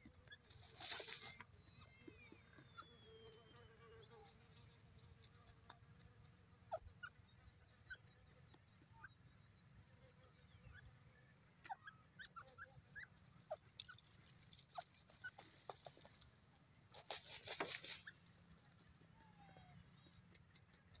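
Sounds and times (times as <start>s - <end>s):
scratches in dry soil: 0.3s - 1.6s, 13.5s - 19.0s
bird wing flapping: 17.0s - 18.9s.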